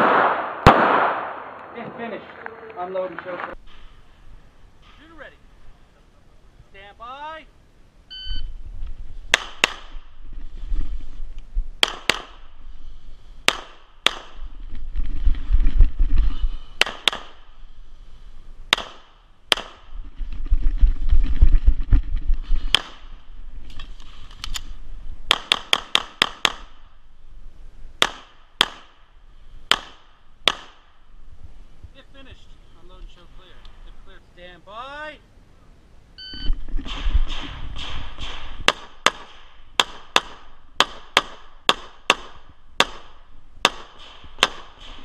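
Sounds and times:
pistol shots: 0.0 - 1.9, 11.8 - 12.4, 13.5 - 14.4, 16.8 - 17.4, 18.7 - 19.8, 25.3 - 26.8, 28.0 - 29.0, 29.7 - 30.9, 36.9 - 45.0.

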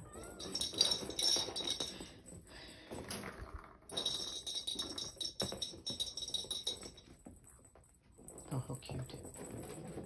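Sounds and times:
jingling cat toy rattling: 0.2 - 2.6, 3.3 - 7.3.

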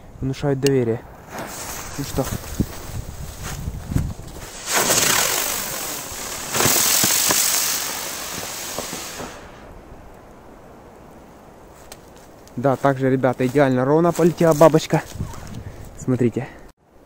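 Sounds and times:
firework cracks: 1.2 - 2.6, 4.3 - 9.8
spinning firework hissing: 1.2 - 3.5, 4.2 - 9.8.

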